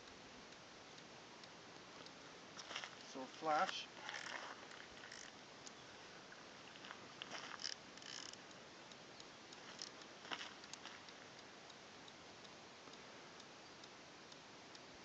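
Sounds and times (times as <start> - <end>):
faint hiss: 0.0 - 15.0
small clicks: 0.9 - 11.5.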